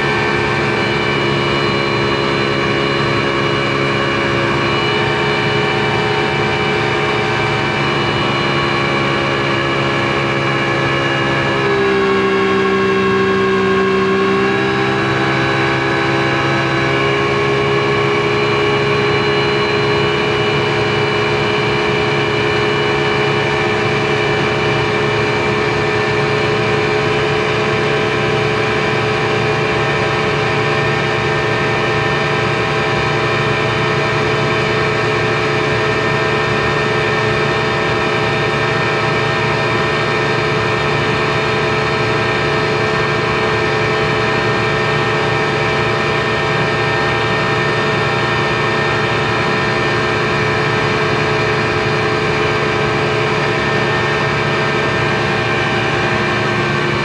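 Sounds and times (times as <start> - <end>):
boat engine droning: 0.0 - 57.0.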